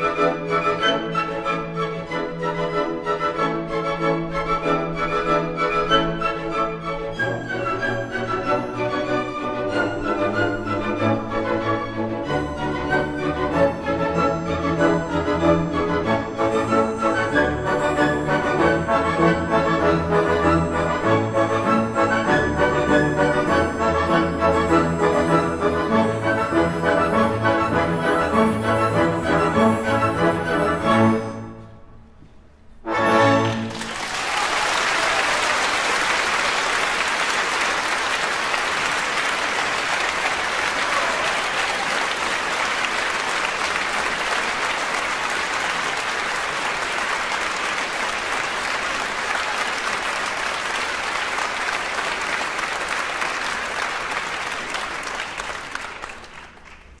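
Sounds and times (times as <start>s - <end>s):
orchestra playing: 0.0s - 56.2s
audience applauding: 33.4s - 57.0s.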